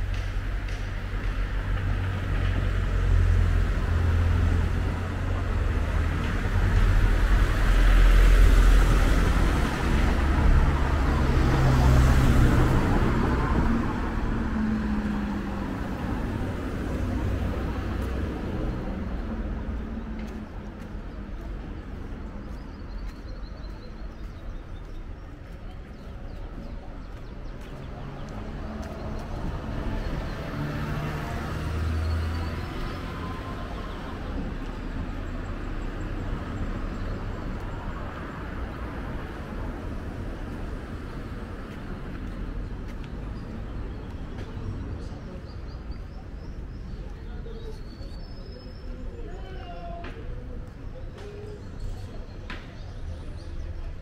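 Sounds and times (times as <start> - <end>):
street background: 0.0 - 54.0
car passing: 27.3 - 43.8.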